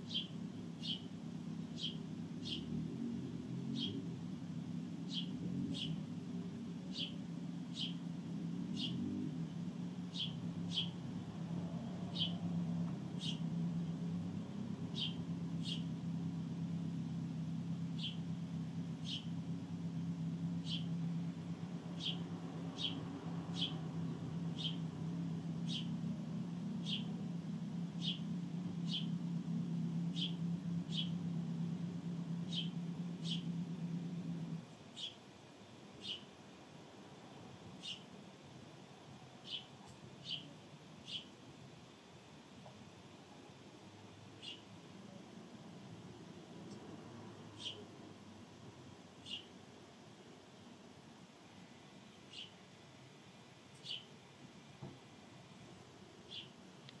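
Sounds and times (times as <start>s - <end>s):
sparrow chirping: 0.0s - 2.8s, 3.7s - 4.3s, 4.9s - 9.1s, 10.0s - 35.3s, 36.0s - 36.4s, 37.7s - 38.1s, 39.4s - 41.4s, 44.3s - 45.2s, 47.5s - 48.0s, 49.2s - 49.6s, 52.1s - 52.6s, 53.7s - 54.2s, 56.2s - 56.6s
steady low hum: 0.0s - 39.3s.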